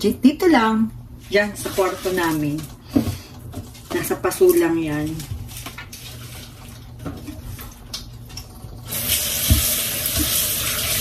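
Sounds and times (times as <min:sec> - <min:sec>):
tap water running into sink: 0:05.8 - 0:11.0.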